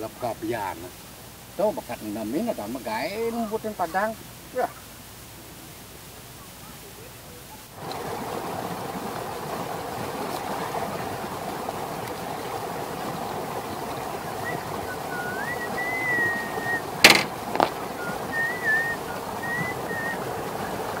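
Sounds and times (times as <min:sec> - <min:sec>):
running water rushing: 0:00.0 - 0:21.0
high thin gliding whistle: 0:14.4 - 0:20.2
sharp click: 0:17.0 - 0:17.8.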